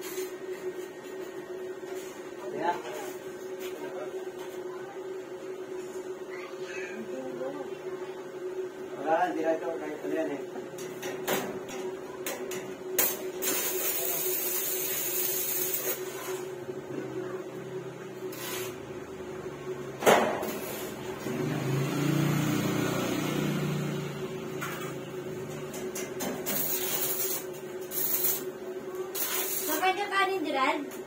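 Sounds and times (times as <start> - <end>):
arc welding crackling: 12.2 - 16.6, 18.3 - 19.0, 20.4 - 21.3, 25.4 - 30.8.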